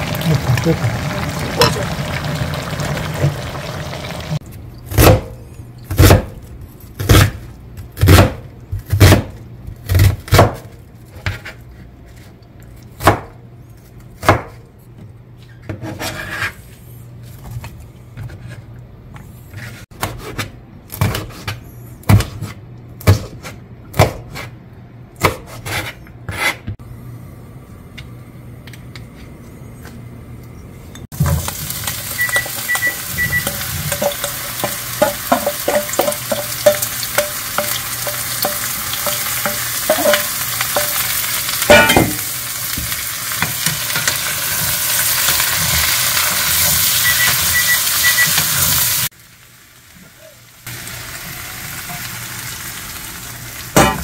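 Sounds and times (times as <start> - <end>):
zucchini sizzling in frying pan: 0.0 - 4.4, 31.2 - 54.0.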